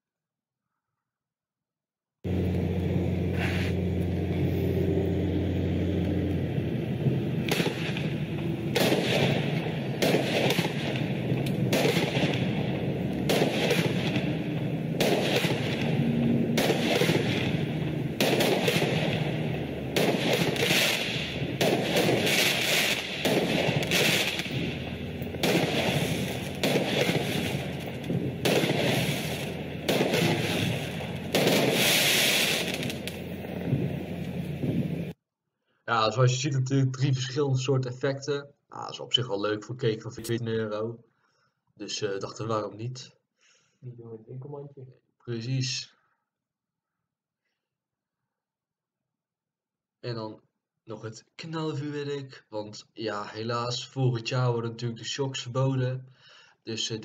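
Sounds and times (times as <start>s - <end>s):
low hum: 2.3s - 35.2s
fireworks bangs: 6.9s - 35.2s.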